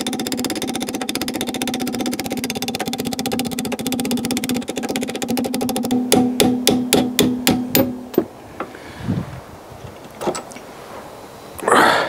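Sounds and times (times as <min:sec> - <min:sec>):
fast tapping pattern: 0:00.0 - 0:07.9.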